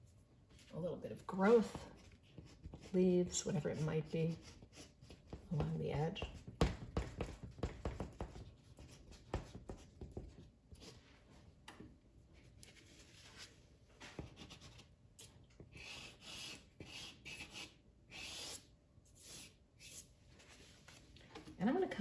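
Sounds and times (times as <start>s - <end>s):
pastel stick scratching paper: 1.9s - 6.4s, 15.7s - 18.6s, 19.2s - 20.1s.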